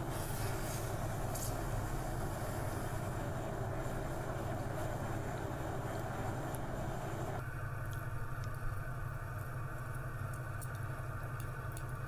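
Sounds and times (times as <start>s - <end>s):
hot steel hissing in water: 0.0s - 7.4s.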